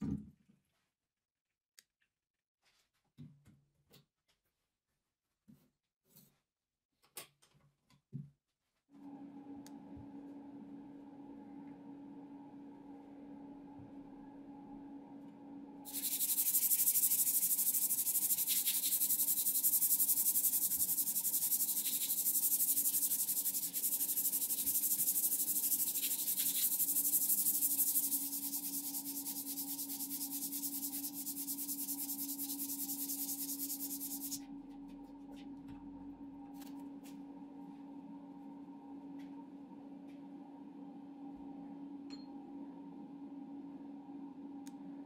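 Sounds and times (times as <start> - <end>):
steady low hum: 9.6 - 45.0
abrasive strip rasping on metal: 15.9 - 34.4.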